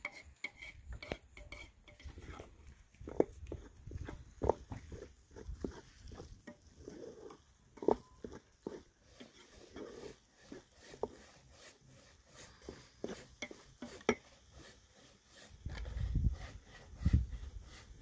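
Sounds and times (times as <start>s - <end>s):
wooden spoon stirring greens: 1.3s - 15.6s.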